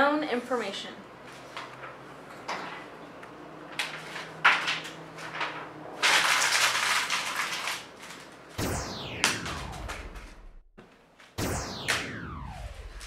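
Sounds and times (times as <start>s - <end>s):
paper rustling and crumpling: 3.9s - 8.5s.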